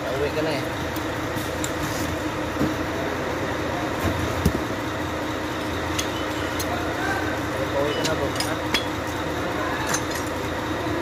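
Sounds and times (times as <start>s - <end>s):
steady background hum: 0.0s - 11.0s
metal gear parts clinking: 7.7s - 10.4s.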